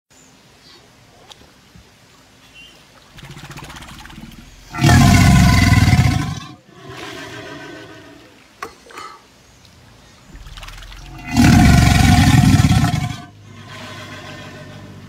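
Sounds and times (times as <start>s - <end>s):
alligator bellowing: 3.1s - 8.4s, 10.3s - 15.0s
alligator growling: 3.1s - 8.4s, 10.3s - 15.0s.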